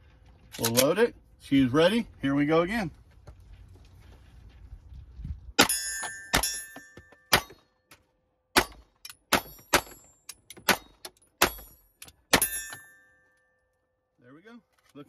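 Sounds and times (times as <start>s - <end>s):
steel plates ringing: 5.6s - 7.6s, 11.5s - 13.6s
pistol shots: 8.5s - 12.7s.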